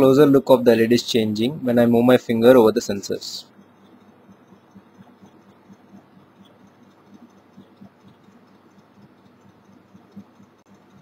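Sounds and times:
small ticks and rustles: 2.8s - 11.0s.

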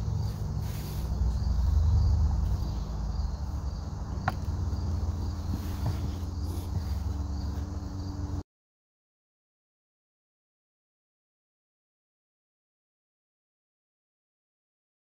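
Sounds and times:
insect chirps: 0.0s - 8.4s.

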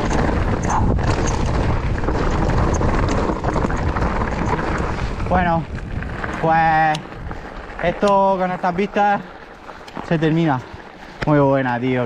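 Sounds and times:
tyres running over dirt trail: 0.0s - 12.0s
wind buffeting microphone: 0.0s - 12.0s.

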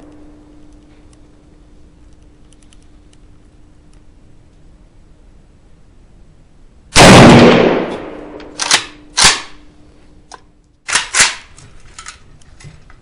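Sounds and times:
rifle shots: 6.9s - 9.6s.

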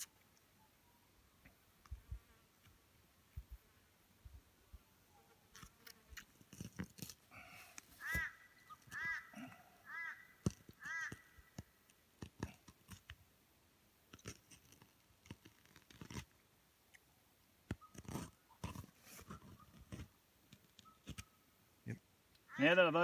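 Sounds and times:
bird calling: 7.9s - 11.6s.

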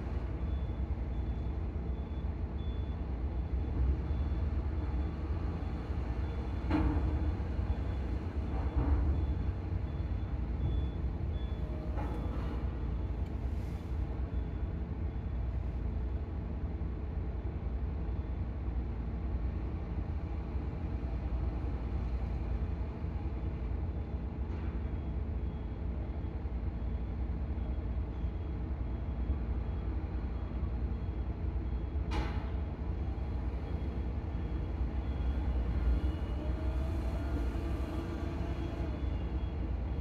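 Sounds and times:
engines rumbling: 32.6s - 40.0s.

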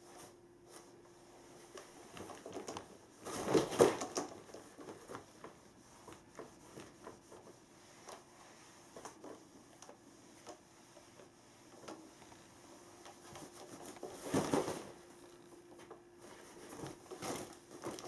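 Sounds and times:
nylon tunnel rustling and crinkling: 11.6s - 15.6s, 16.2s - 18.0s.

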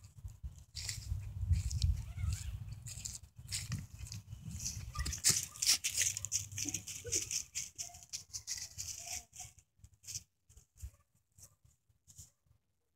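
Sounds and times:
dry leaves crunching underfoot: 0.0s - 10.2s.

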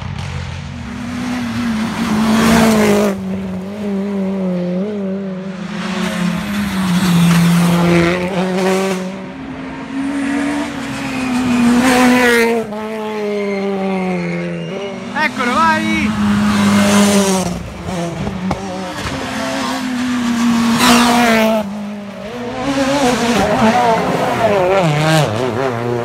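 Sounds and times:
rally cars passing: 0.0s - 26.0s.

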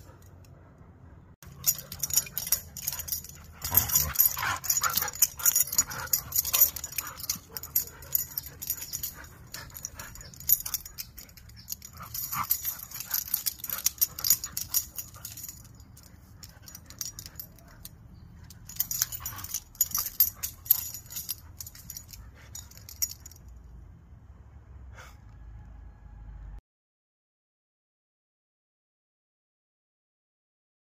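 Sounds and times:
dogs vocalizing while playing: 1.5s - 23.2s.

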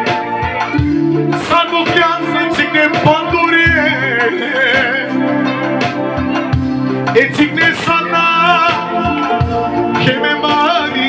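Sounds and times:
amplified backing music: 0.0s - 11.0s
man singing into a microphone: 1.0s - 5.7s, 7.1s - 11.0s.

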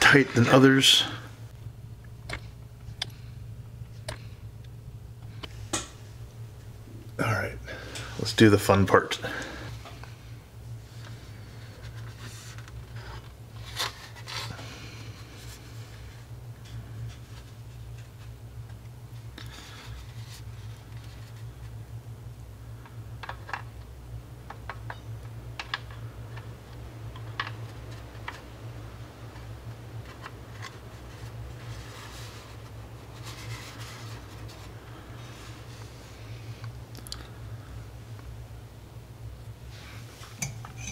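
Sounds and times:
steady low hum: 0.0s - 40.9s
plastic parts clicking and tapping: 27.1s - 28.4s.

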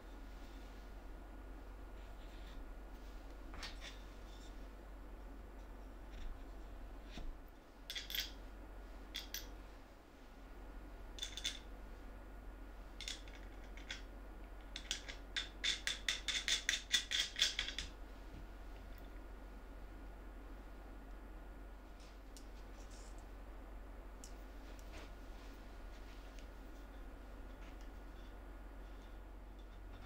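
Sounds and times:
metal washers and nuts clinking: 7.9s - 8.4s.

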